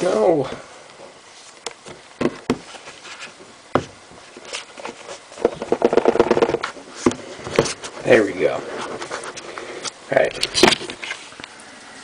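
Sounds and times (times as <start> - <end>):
cardboard sliding on cardboard: 1.3 - 9.8
cardboard knocks and scrapes: 1.8 - 8.0.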